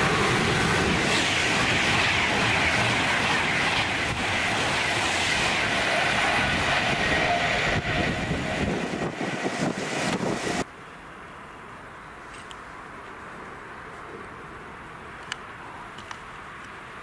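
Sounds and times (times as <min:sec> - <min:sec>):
train rushing at speed: 0:00.0 - 0:10.7
faint train whine: 0:00.0 - 0:17.0.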